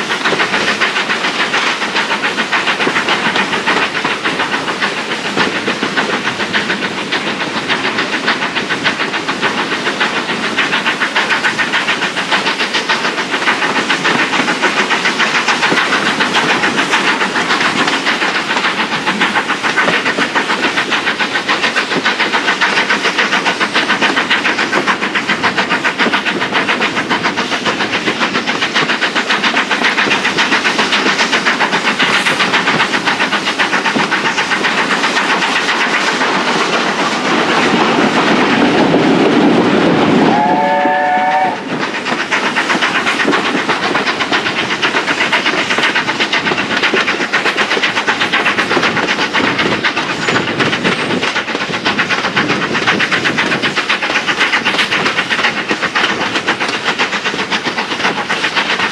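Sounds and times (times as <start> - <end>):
carriage wheels rumbling on rails: 0.0 - 58.9
steam locomotive exhaust beats: 0.0 - 58.9
steam whistle blast: 40.3 - 41.7.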